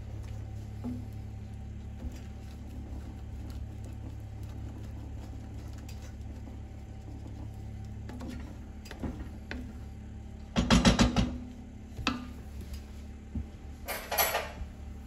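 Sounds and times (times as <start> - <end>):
steady low hum: 0.0 - 15.0
wooden spoon knocking on pan: 10.5 - 12.4.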